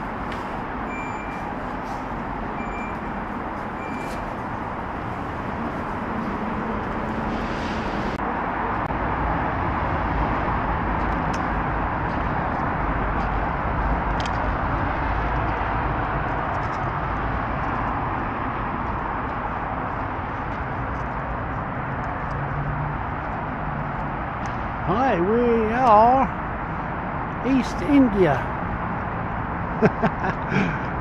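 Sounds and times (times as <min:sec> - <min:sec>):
road traffic noise: 0:00.0 - 0:31.0
short high beeps: 0:00.9 - 0:01.5, 0:03.8 - 0:04.2.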